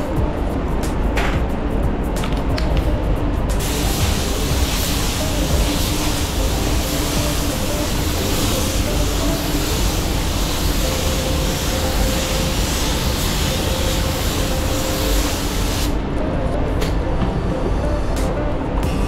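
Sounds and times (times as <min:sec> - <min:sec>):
spray gun hissing: 0:03.6 - 0:16.0.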